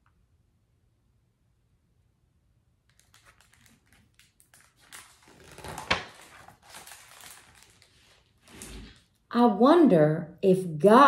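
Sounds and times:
sharp page flap: 2.9s - 9.0s
paper pages rustling: 2.9s - 9.2s.

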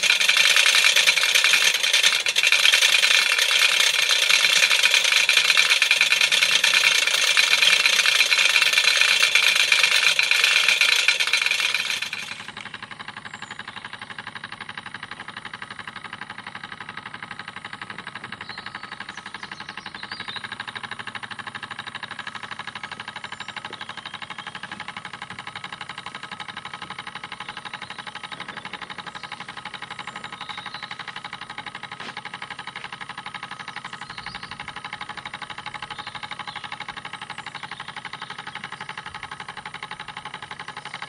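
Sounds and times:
rapid ticking: 0.0s - 13.2s
model steam engine running: 0.0s - 41.0s.

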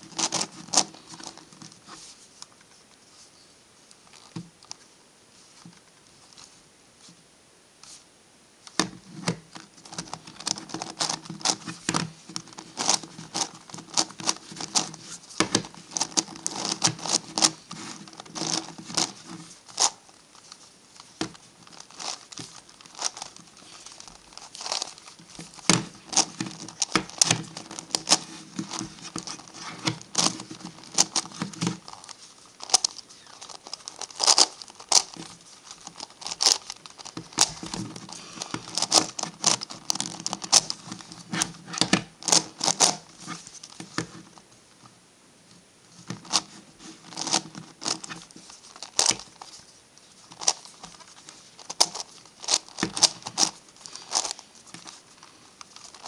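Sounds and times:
plastic puzzle pieces clicking: 21.2s - 41.1s.

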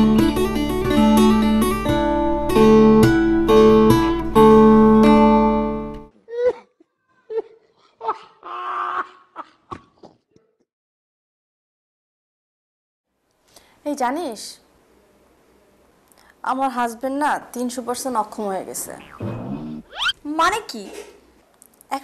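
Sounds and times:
plucked acoustic guitar music: 0.0s - 6.1s.

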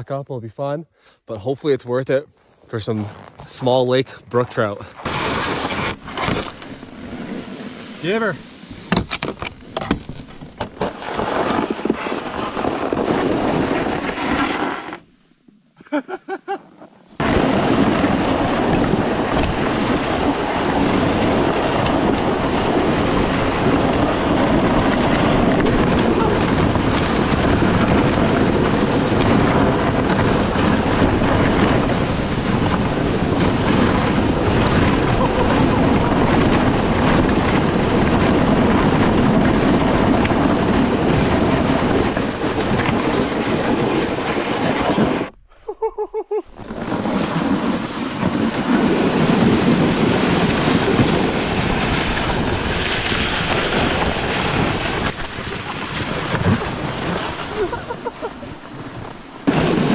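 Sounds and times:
plastic sled scraping over snow: 2.7s - 15.2s, 17.1s - 45.4s, 46.5s - 59.9s
wind buffeting microphone: 17.2s - 45.4s, 46.5s - 59.9s.

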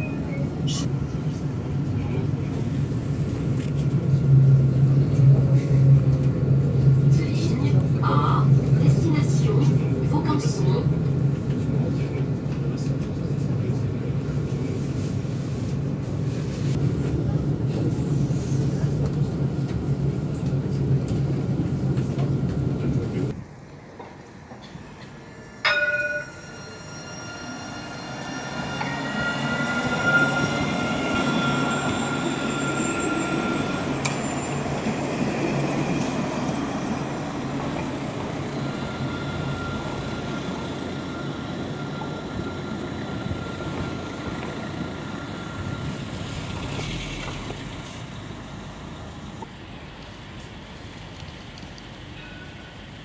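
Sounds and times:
rumble of tram wheels: 0.0s - 53.0s
whine of traction motors: 36.0s - 53.0s.

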